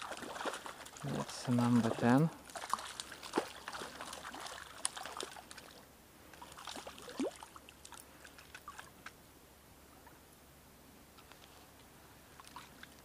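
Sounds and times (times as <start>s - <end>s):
water plop: 0.0s - 8.9s
water splashing and dripping: 0.0s - 9.2s
faint water trickle: 0.0s - 10.4s, 11.1s - 13.0s.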